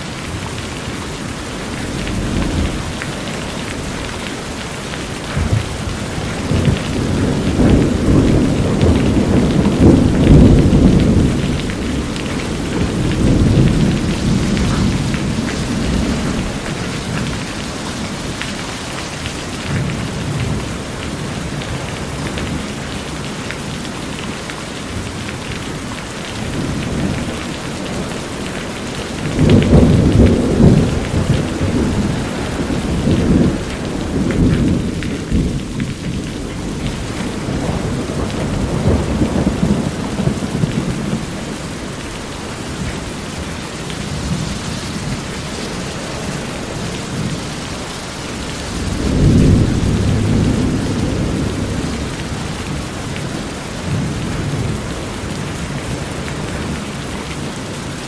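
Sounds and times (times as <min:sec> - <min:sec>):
thunder rumbling: 0:00.0 - 0:23.9, 0:24.9 - 0:56.9
heavy rain on metal roof: 0:00.0 - 0:58.0.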